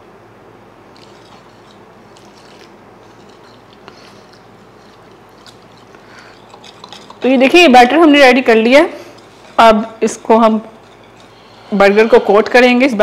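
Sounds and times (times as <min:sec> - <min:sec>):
whisk squishing batter: 0:01.0 - 0:07.9.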